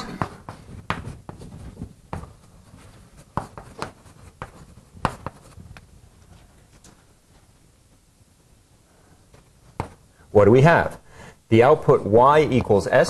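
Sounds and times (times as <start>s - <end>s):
pen writing taps and scratches: 3.2s - 5.6s.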